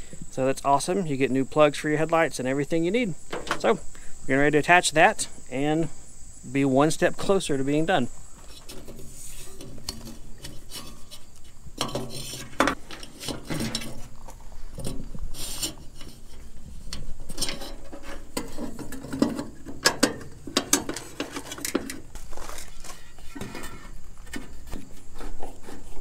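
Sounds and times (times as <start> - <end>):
hands rubbing and scraping wiring: 8.1 - 26.0.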